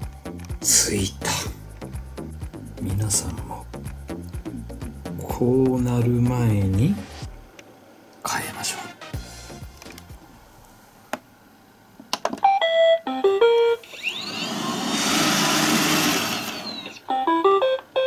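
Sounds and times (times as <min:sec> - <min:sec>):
vacuum motors whirring: 0:13.8 - 0:17.2.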